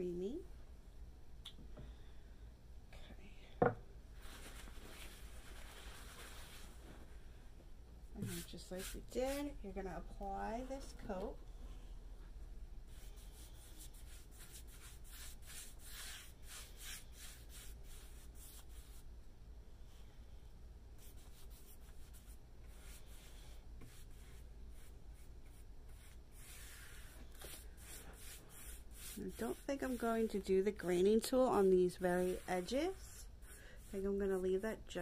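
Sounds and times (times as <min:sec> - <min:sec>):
paintbrush swishing on wood: 0:08.2 - 0:09.6, 0:21.0 - 0:30.5, 0:31.5 - 0:34.6.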